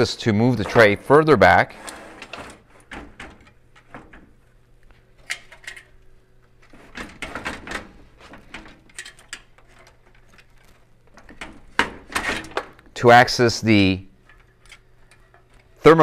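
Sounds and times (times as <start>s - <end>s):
faint steady hum: 0.0s - 16.0s
wires and connectors rattling: 2.2s - 13.0s, 14.1s - 16.0s.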